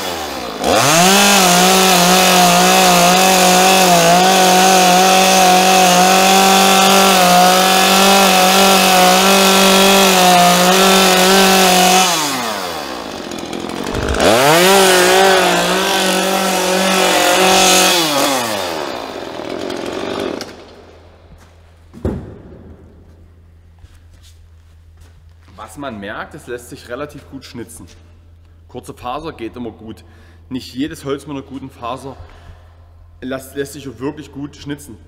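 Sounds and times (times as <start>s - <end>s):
chainsaw cutting wood: 0.0s - 21.2s.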